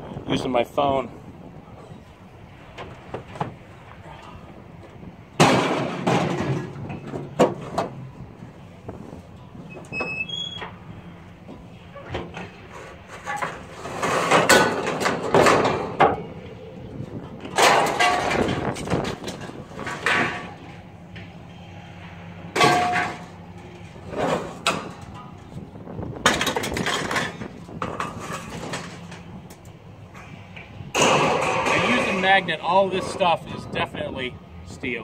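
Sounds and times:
scrap metal clattering and clanging: 5.4s - 8.1s, 11.5s - 16.3s, 17.4s - 21.6s, 22.4s - 25.6s, 26.2s - 33.4s.

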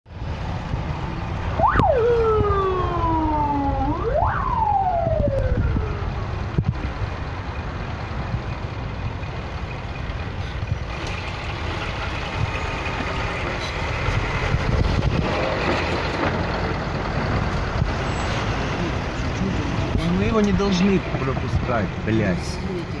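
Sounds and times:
traffic engines rumbling: 0.1s - 23.0s
emergency vehicle siren: 1.3s - 7.5s.

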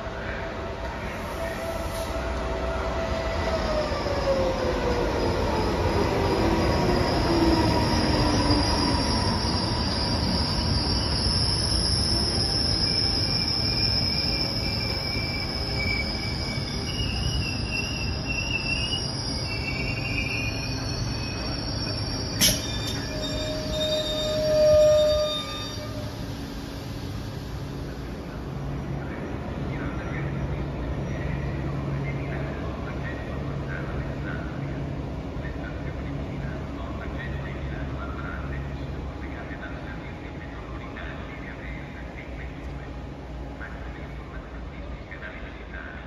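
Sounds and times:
falling whine of slowing train: 0.0s - 46.0s
train wheels rumbling on rail: 0.8s - 45.9s
steady high squeal: 1.0s - 34.6s
wavering high squeals: 2.7s - 27.4s.

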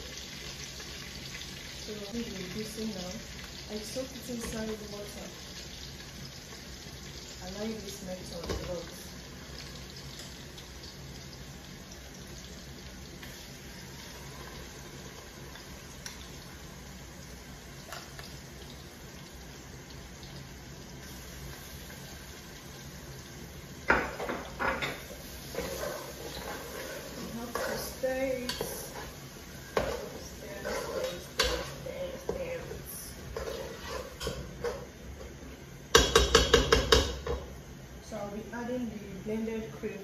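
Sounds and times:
hot oil sizzling: 0.0s - 40.0s.

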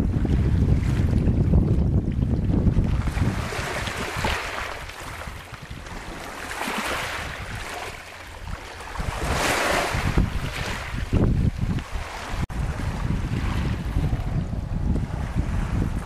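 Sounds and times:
wind buffeting microphone: 0.0s - 16.0s
waves breaking on pebble beach: 3.1s - 8.0s, 8.6s - 11.2s.

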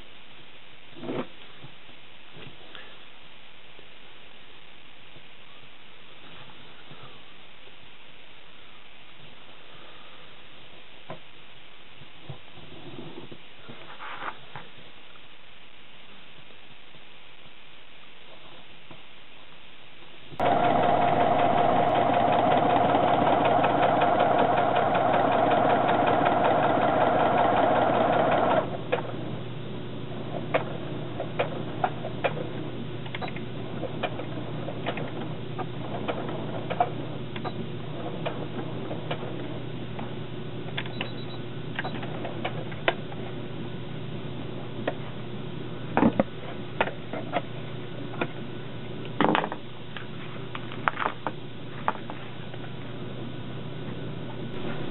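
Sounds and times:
steady low hum: 0.0s - 54.9s
sewing machine stitching: 20.4s - 29.1s.

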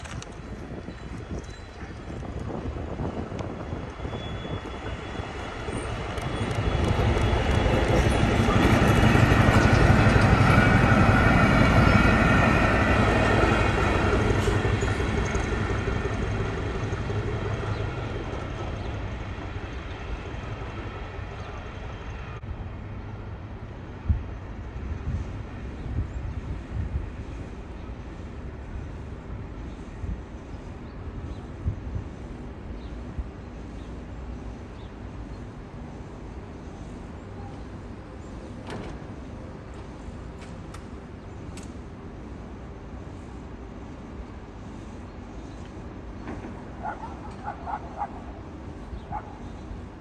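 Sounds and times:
diesel locomotive engine passing: 0.4s - 50.0s.

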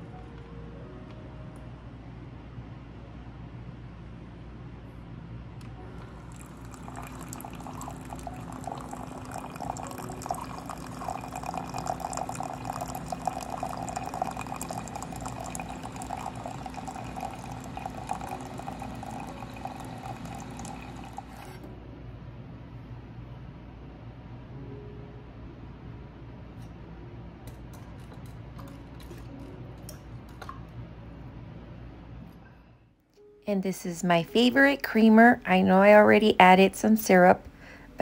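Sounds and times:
coffee maker low hum: 5.6s - 21.7s
coffee pouring into mug: 6.0s - 21.6s.

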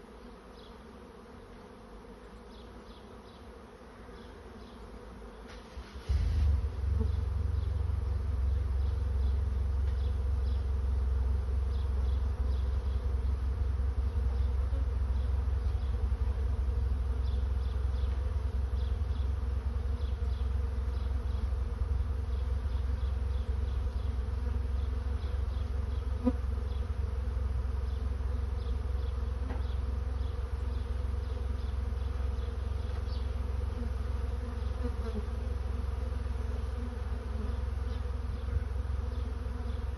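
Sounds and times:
bees buzzing: 0.0s - 39.9s
loud low rumble: 6.1s - 9.7s.

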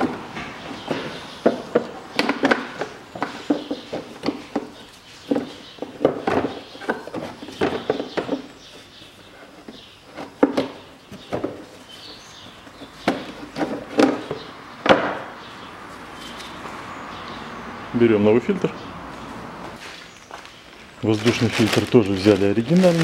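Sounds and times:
plastic housing knocking and scraping: 0.8s - 8.6s, 12.8s - 15.2s.

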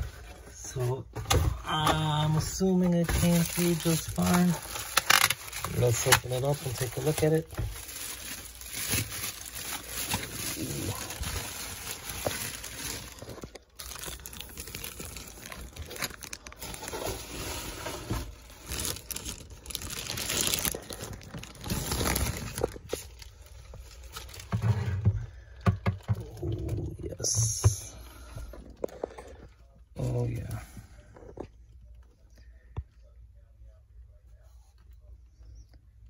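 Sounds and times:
bubble wrap crinkling: 2.0s - 24.6s.

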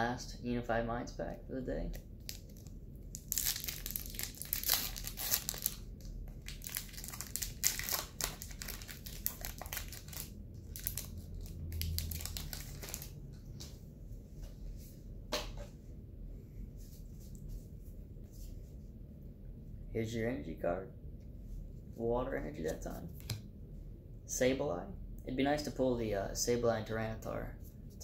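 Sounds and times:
foil wrapper crinkling and tearing: 2.2s - 13.2s.

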